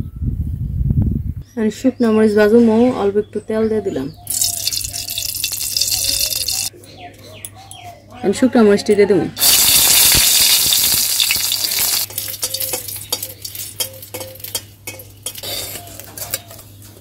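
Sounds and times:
chillies sizzling in hot oil: 0:04.3 - 0:06.7, 0:09.4 - 0:14.6
spatula scraping and tapping pan: 0:12.0 - 0:16.3.

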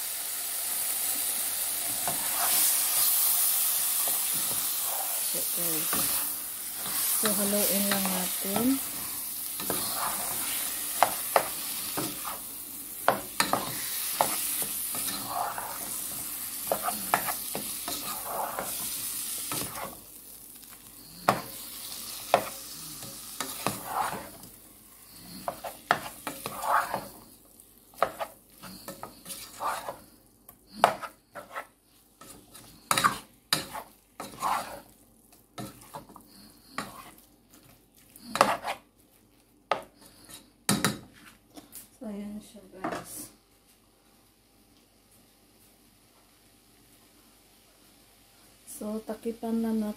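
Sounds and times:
chicken sizzling in a pan: 0:00.0 - 0:30.0
spatula scraping pan: 0:01.8 - 0:20.1, 0:20.8 - 0:27.3, 0:27.9 - 0:35.0, 0:35.6 - 0:38.9, 0:39.7 - 0:41.3.

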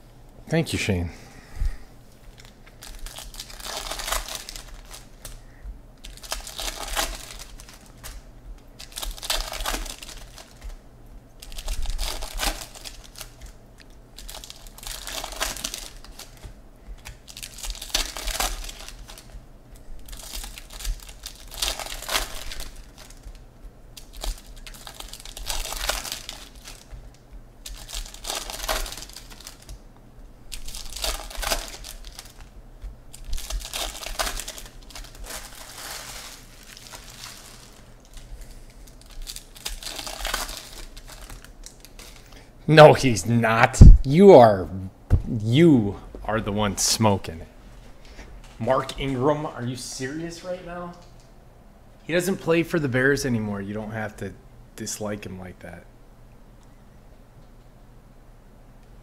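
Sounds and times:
card wrappers crinkling and tearing: 0:02.3 - 0:29.8, 0:30.5 - 0:42.4.

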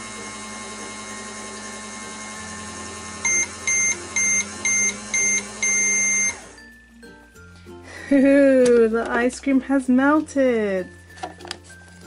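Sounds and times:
toy microwave electronic hum: 0:00.0 - 0:06.6
microwave beeps: 0:03.2 - 0:06.6.

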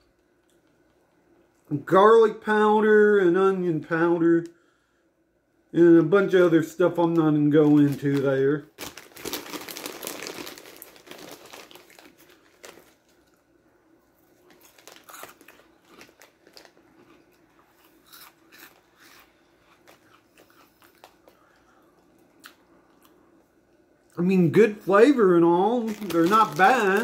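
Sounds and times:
snack bag crinkling: 0:07.1 - 0:13.5, 0:14.2 - 0:22.6, 0:25.6 - 0:27.0
chips being crunched: 0:07.6 - 0:13.3, 0:25.8 - 0:27.0.

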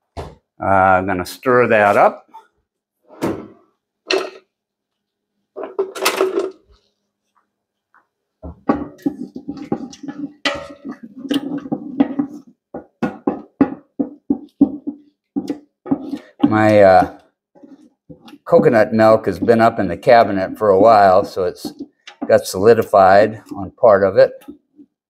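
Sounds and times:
spoon scraping and knocking pot: 0:08.4 - 0:23.8.

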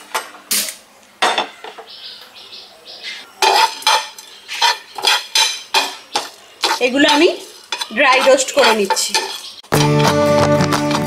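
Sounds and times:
spatula scraping spices in pan: 0:03.4 - 0:10.2.

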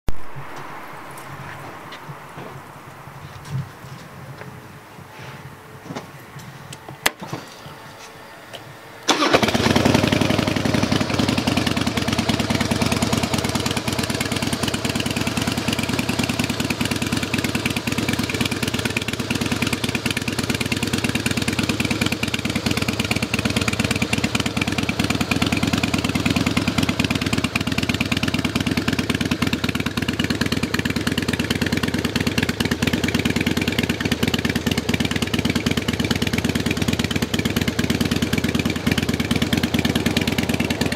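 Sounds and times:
motorcycle engine starting: 0:09.0 - 0:40.9
motorcycle engine idling: 0:09.1 - 0:40.9.

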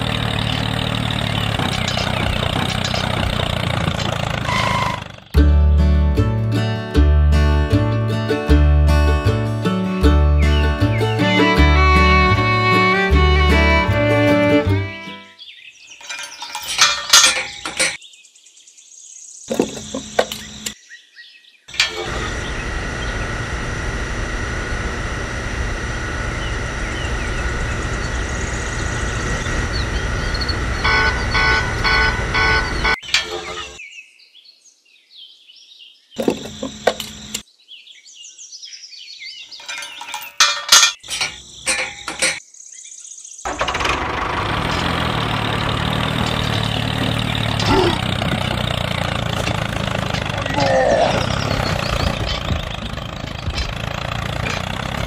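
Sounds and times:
steady engine sound: 0:00.0 - 0:06.3, 0:07.4 - 0:15.2, 0:21.8 - 0:33.8, 0:36.2 - 0:37.4, 0:43.5 - 0:55.0.

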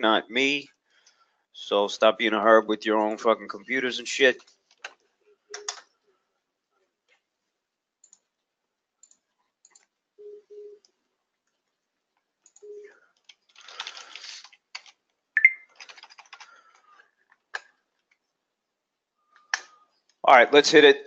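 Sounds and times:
computer keyboard typing: 0:04.4 - 0:05.8, 0:12.5 - 0:17.0.

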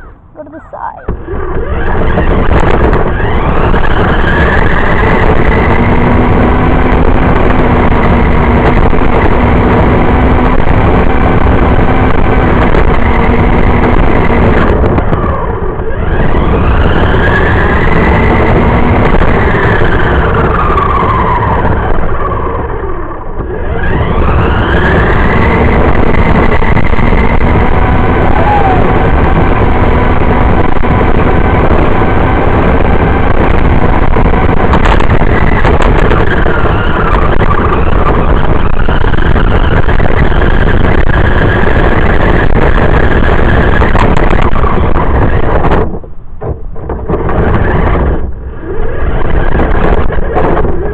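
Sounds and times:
toy car motor whine: 0:00.0 - 0:09.2, 0:12.6 - 0:32.1
tyres rumbling on pavement: 0:00.0 - 0:50.9.

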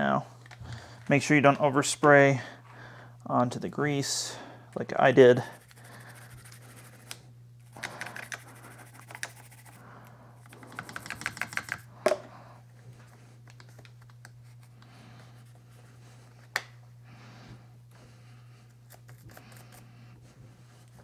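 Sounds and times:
toothbrush scrubbing metal and plastic: 0:07.7 - 0:09.8.

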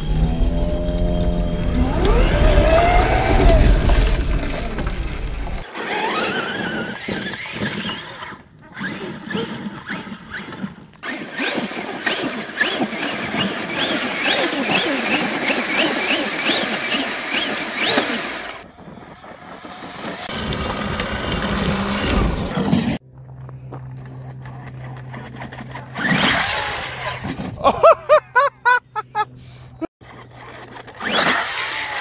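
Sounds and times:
electric motor whining: 0:05.6 - 0:27.6, 0:30.0 - 0:32.0
tyres churning through dirt: 0:05.6 - 0:32.0.

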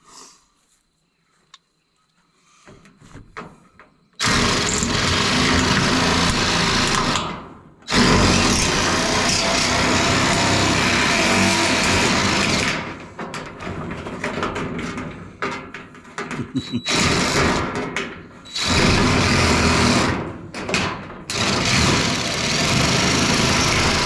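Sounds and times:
power metal shears cutting steel: 0:04.2 - 0:13.0, 0:21.3 - 0:24.0.

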